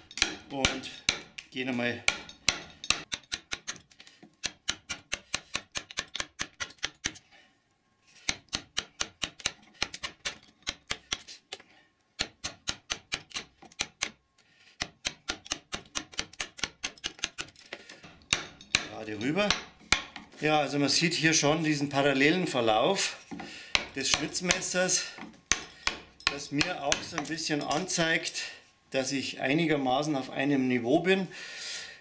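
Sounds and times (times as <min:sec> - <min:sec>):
mallet tapping carving gouge: 0:00.0 - 0:07.2, 0:08.2 - 0:11.3, 0:12.2 - 0:14.2, 0:14.8 - 0:20.3, 0:23.3 - 0:27.8.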